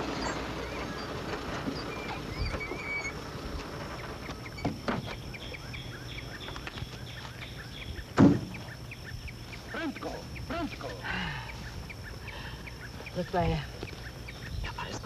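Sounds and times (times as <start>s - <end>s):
birds chirping: 0.0s - 15.0s
car door slam: 8.1s - 8.6s
knocks: 8.2s - 8.6s.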